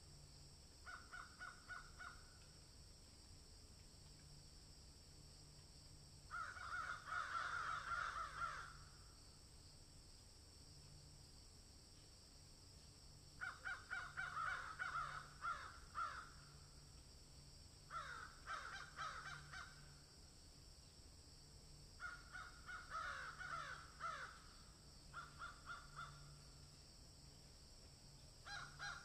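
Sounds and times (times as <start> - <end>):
rapid repeated animal calls: 0.8 - 2.3, 13.4 - 16.4, 25.1 - 26.4.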